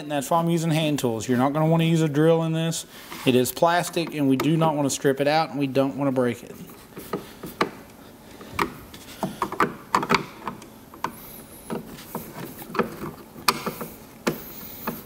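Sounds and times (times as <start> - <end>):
screwdriver clicks and knocks: 8.5 - 15.0.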